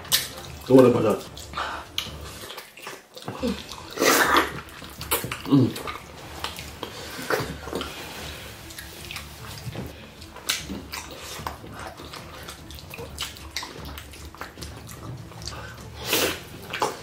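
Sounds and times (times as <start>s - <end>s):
lips and fingers smacking: 0.0s - 0.6s, 10.2s - 17.0s
people chewing and squelching: 0.0s - 17.0s.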